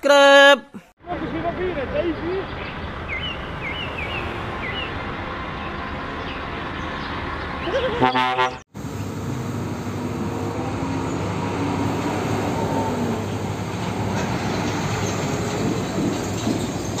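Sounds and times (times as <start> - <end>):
diesel truck engine rumble: 1.0 - 17.0
road noise: 1.0 - 17.0.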